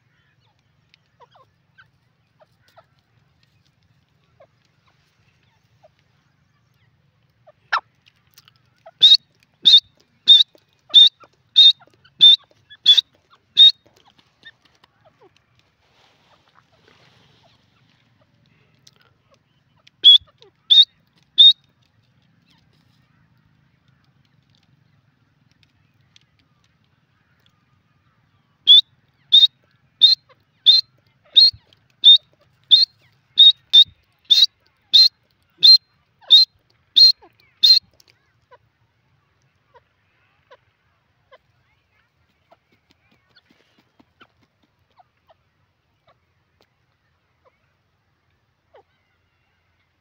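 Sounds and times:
francolin calling: 0:08.8 - 0:13.9, 0:19.9 - 0:21.6, 0:28.7 - 0:38.0.

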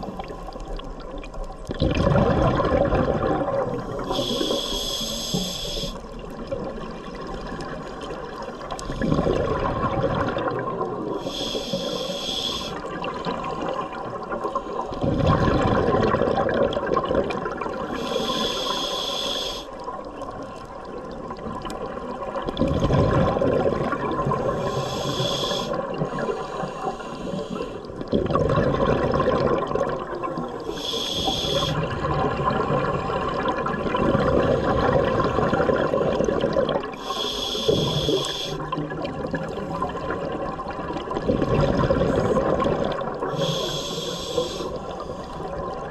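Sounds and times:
exhaled bubbles rushing: 0:00.0 - 0:04.2, 0:06.2 - 0:11.2, 0:12.8 - 0:18.0, 0:19.9 - 0:24.8, 0:27.8 - 0:30.7, 0:31.5 - 0:37.0, 0:37.7 - 0:43.4
regulator inhale hiss: 0:03.8 - 0:06.2, 0:11.2 - 0:12.9, 0:17.8 - 0:19.9, 0:24.6 - 0:27.9, 0:30.6 - 0:31.8, 0:37.0 - 0:38.6, 0:43.2 - 0:45.5.

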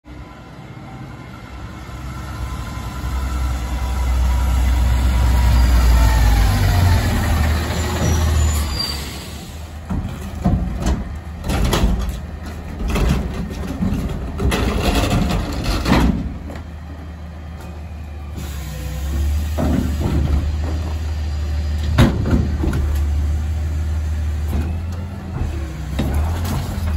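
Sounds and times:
garbage truck engine rumbling: 0:00.1 - 0:26.9
metal dumpster clanks and bangs: 0:09.8 - 0:16.7, 0:19.4 - 0:21.0, 0:21.8 - 0:23.2.

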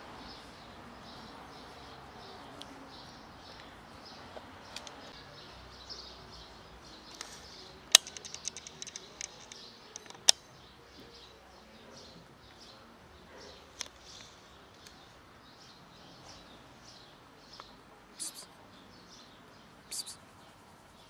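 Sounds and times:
sharp clicks: 0:07.9 - 0:10.4
high chirping: 0:18.2 - 0:18.5, 0:19.9 - 0:20.2.

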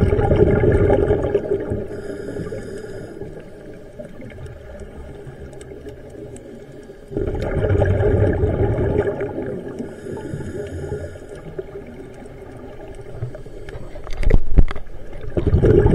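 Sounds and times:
diver's exhaled bubbles underwater: 0:00.0 - 0:02.6, 0:07.1 - 0:13.4, 0:14.0 - 0:15.9.

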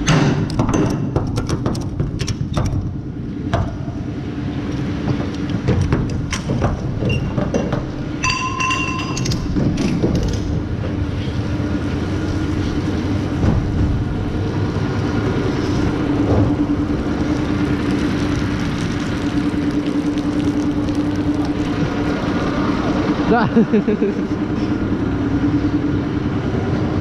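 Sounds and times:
metallic clanks: 0:05.0 - 0:11.0
tractor engine idling: 0:07.8 - 0:27.0
heavy rain: 0:11.4 - 0:24.6.

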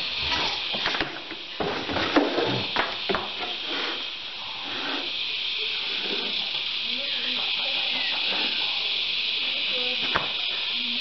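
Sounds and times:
background hiss: 0:00.0 - 0:11.0
battery knocking on wooden boards: 0:00.8 - 0:03.5.

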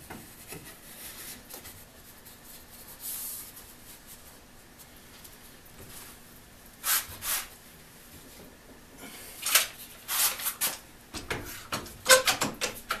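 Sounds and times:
clamp clicking and knocking: 0:11.2 - 0:13.0.

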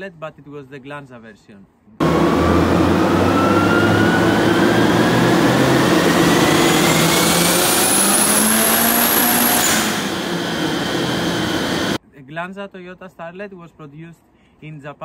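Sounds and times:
car engine accelerating: 0:02.0 - 0:12.0.

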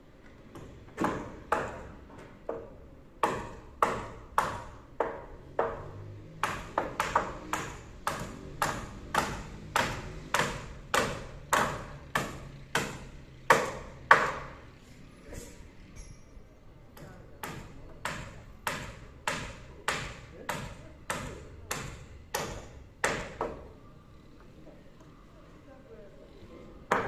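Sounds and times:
hammers striking nails into timber: 0:00.5 - 0:14.6, 0:17.0 - 0:23.7.

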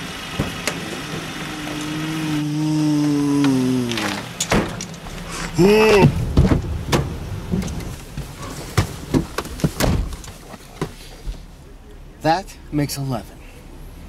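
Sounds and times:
car engine revving down: 0:00.0 - 0:08.2
short rising and falling cry: 0:00.8 - 0:04.4
knocks and thumps on car body: 0:06.0 - 0:07.6.

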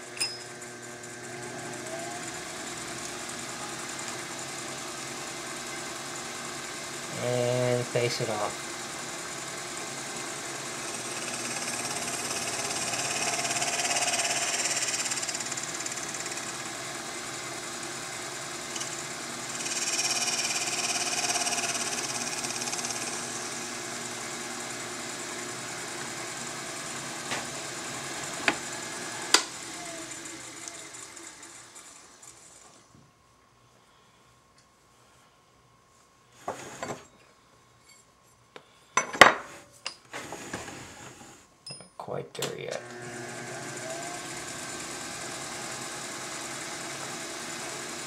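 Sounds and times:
metal lathe whine: 0:00.0 - 0:32.8, 0:42.8 - 0:48.0
lathe tool cutting metal: 0:00.2 - 0:32.1, 0:42.8 - 0:48.0
lathe spindle winding down: 0:00.4 - 0:07.8, 0:08.6 - 0:32.8, 0:42.8 - 0:48.0.

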